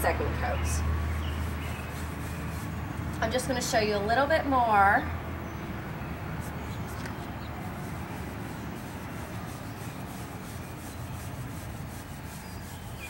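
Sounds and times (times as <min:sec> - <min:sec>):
paintbrush scrubbing cane panel: 0:00.0 - 0:03.7, 0:06.4 - 0:13.0.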